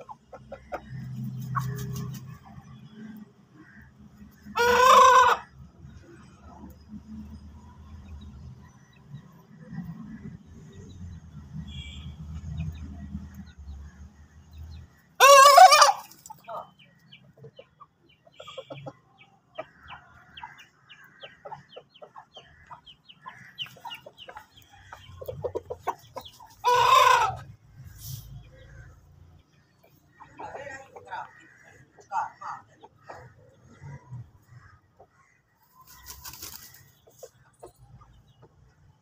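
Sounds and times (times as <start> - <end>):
rooster calls: 4.5 - 5.4, 15.2 - 16.1, 26.6 - 27.5
soft clucking: 16.2 - 27.5.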